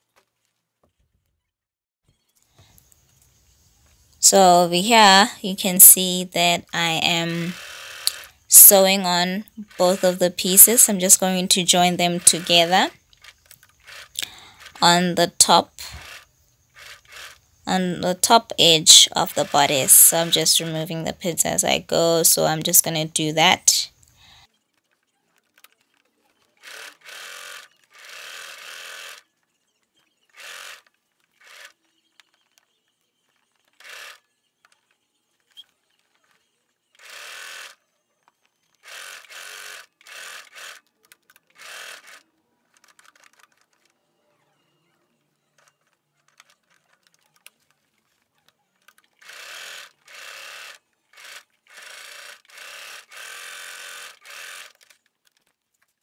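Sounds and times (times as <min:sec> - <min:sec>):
sewing machine stitching: 0:07.1 - 0:08.8, 0:09.4 - 0:20.7, 0:24.7 - 0:55.6.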